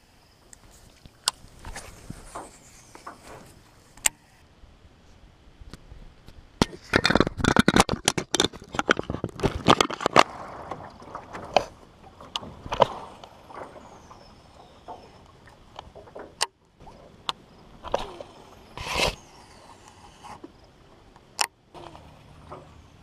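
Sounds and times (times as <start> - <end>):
handling knocks and rubbing: 0.6 - 4.2.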